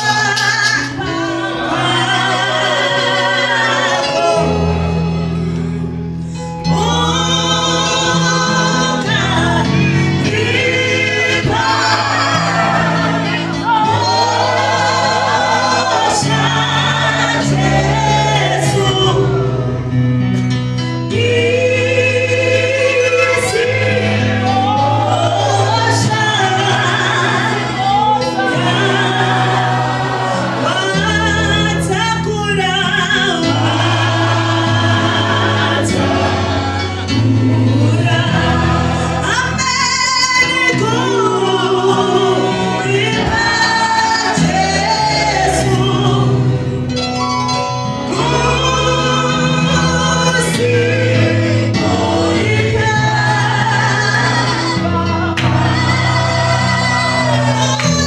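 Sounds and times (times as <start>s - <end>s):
woman singing into microphone: 0.0s - 4.7s, 6.6s - 19.5s, 21.0s - 29.6s, 30.6s - 36.0s, 37.1s - 46.5s, 48.1s - 58.0s
backing singers: 0.0s - 5.4s, 6.6s - 20.2s, 21.0s - 46.9s, 47.7s - 58.0s
held bass notes: 0.0s - 58.0s.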